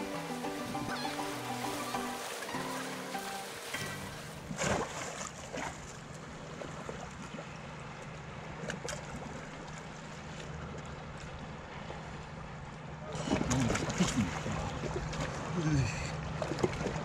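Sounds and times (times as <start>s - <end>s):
sea water washing over rocks: 0.0s - 5.6s.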